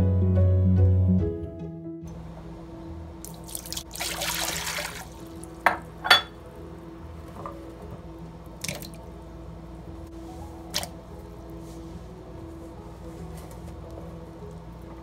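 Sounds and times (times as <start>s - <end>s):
water pouring into pot: 3.2s - 5.7s
pumpkin pieces splashing into water: 3.3s - 5.4s, 8.6s - 9.0s, 10.7s - 10.9s.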